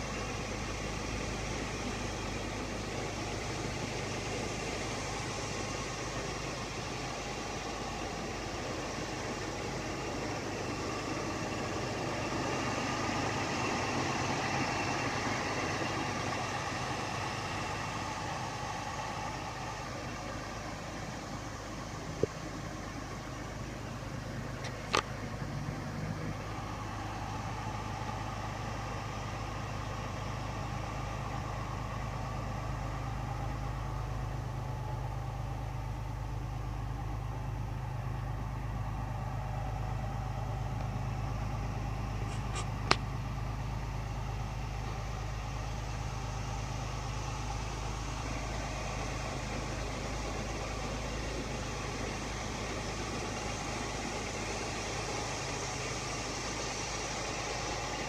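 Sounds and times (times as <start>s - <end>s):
pickup engine idling: 0.0s - 58.0s
sharp click: 42.3s - 43.1s.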